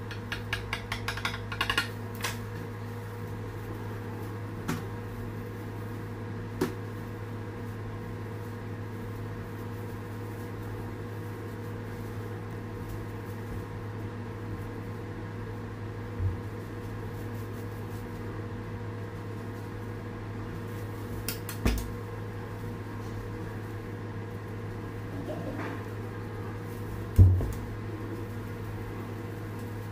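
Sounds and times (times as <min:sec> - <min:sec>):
low machine hum: 0:00.0 - 0:29.9
knocks and clicks on countertop: 0:00.1 - 0:01.9.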